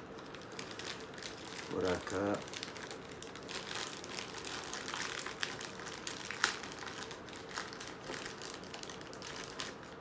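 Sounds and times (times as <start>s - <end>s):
plastic bag crinkling: 0.0s - 10.0s.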